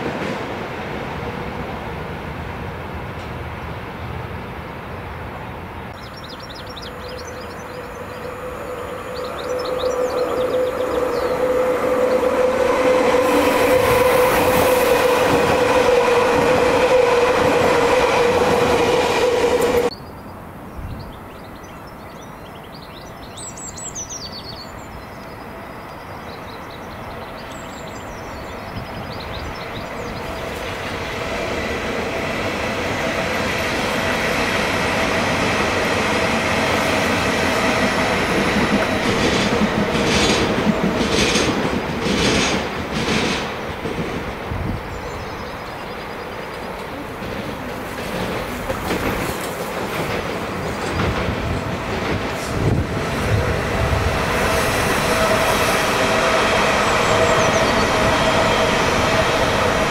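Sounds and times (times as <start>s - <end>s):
electric train approaching: 0.0s - 20.5s, 23.9s - 59.9s
electric train passing: 0.0s - 20.6s, 24.0s - 59.9s
birds chirping: 5.9s - 15.8s, 19.7s - 32.3s, 44.3s - 48.8s, 55.0s - 59.8s.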